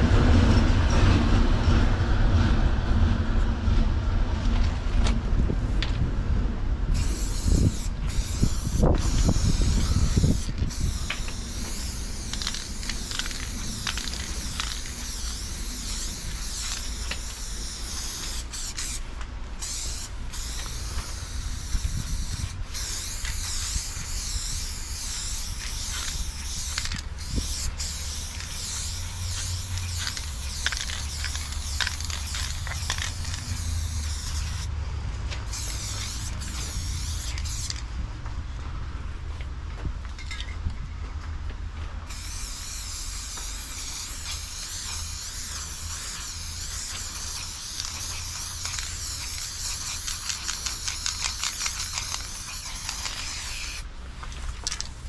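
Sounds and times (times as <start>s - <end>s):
spray paint can hissing: 6.9s - 34.7s, 35.4s - 37.9s, 42.1s - 55.0s.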